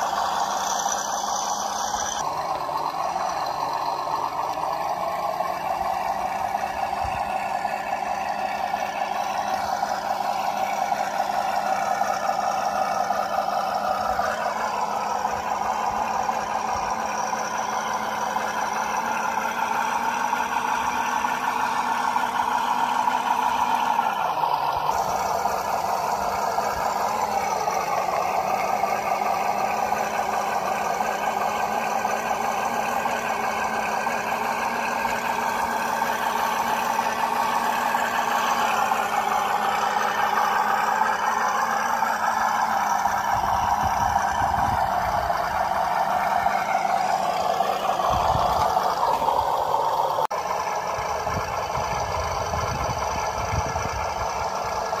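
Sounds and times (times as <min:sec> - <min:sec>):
model truck motor whine: 0:00.0 - 0:55.0.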